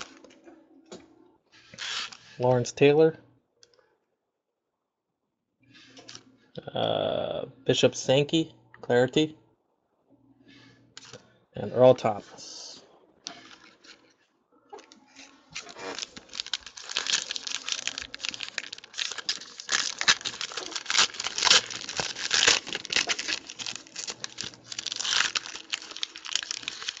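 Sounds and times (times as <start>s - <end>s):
foil wrapper tearing and crinkling: 1.8s - 2.2s, 15.5s - 27.0s.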